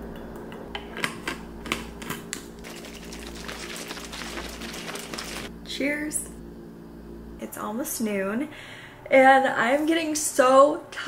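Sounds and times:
bottle shaken with rustling: 0:02.6 - 0:05.5.

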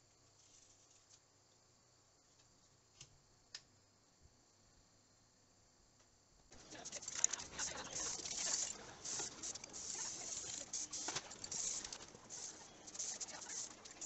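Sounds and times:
aerosol spray can hissing: 0:06.6 - 0:14.0.

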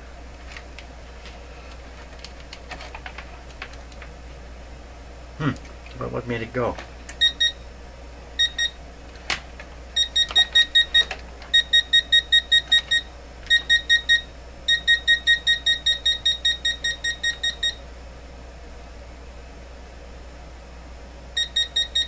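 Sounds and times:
multimeter beeping rapidly: 0:07.2 - 0:07.6, 0:10.0 - 0:17.8, 0:21.4 - 0:22.0.

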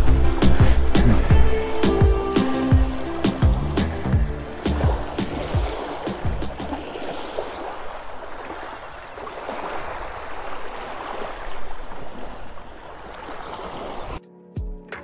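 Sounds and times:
small waves lapping on pebbles: 0:04.5 - 0:14.2.

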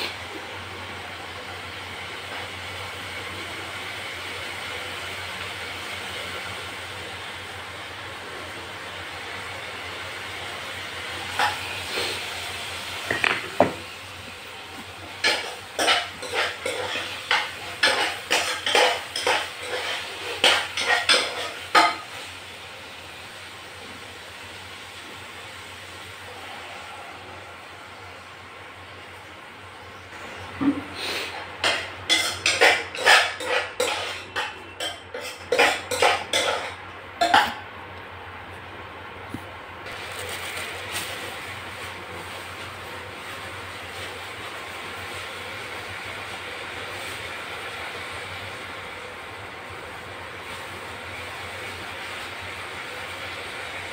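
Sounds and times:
vegetables sizzling in oil: 0:00.0 - 0:37.8, 0:39.8 - 0:53.9
metal ladle scraping steel saucepan: 0:31.6 - 0:37.5.

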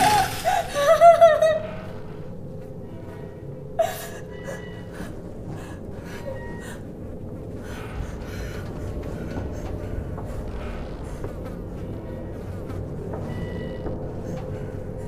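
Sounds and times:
low steady drone: 0:00.0 - 0:15.0
whimpering breaths: 0:03.8 - 0:15.0.

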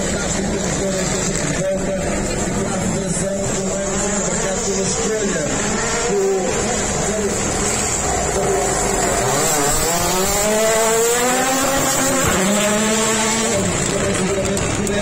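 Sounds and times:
rally car accelerating past: 0:05.5 - 0:15.0.

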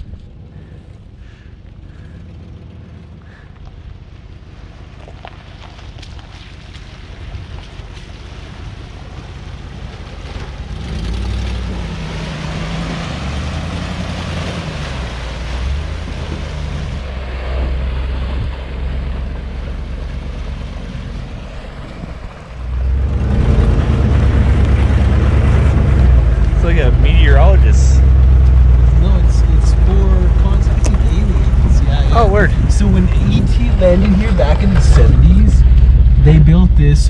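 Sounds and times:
water sloshing: 0:00.5 - 0:27.0
engine revving: 0:09.0 - 0:37.0
wind on microphone: 0:15.9 - 0:18.8.

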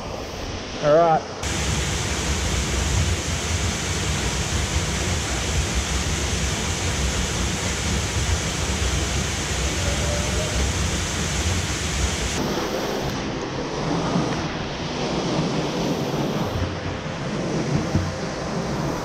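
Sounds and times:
waterfall splashing onto rocks: 0:01.4 - 0:12.4
low rumble: 0:01.4 - 0:19.0.

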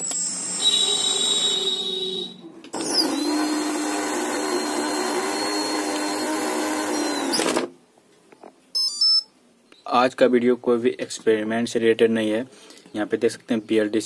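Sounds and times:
electric motor whining: 0:02.8 - 0:07.6.

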